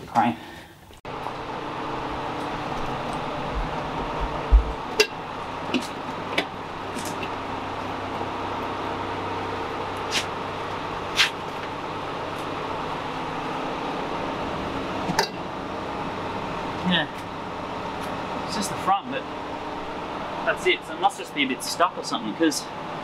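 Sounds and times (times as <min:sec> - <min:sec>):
mechanical hum: 0:00.0 - 0:23.0.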